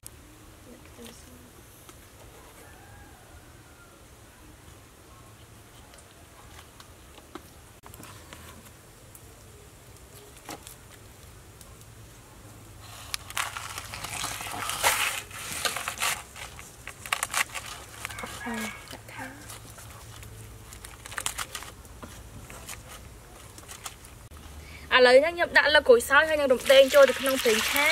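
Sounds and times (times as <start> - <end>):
wet crackling and scraping: 12.8 - 24.6, 26.1 - 27.9.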